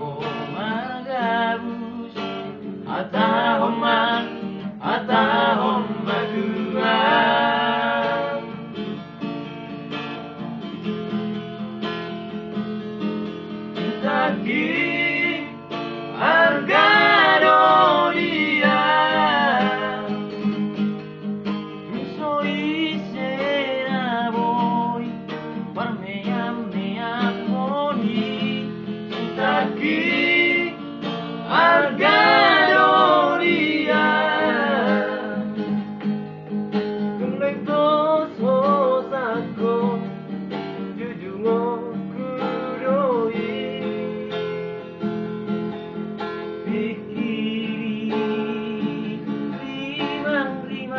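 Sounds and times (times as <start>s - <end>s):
men singing: 0.0s - 8.7s, 13.8s - 20.5s, 21.9s - 25.1s, 25.8s - 35.8s, 37.2s - 40.1s, 40.9s - 44.3s, 46.7s - 50.9s
strummed acoustic guitar: 0.0s - 50.9s.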